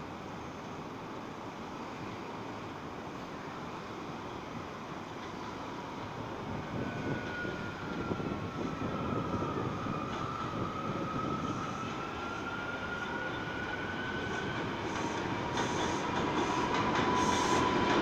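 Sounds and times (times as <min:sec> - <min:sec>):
high train whine: 0:00.0 - 0:18.0
subway train rumble: 0:00.0 - 0:18.0.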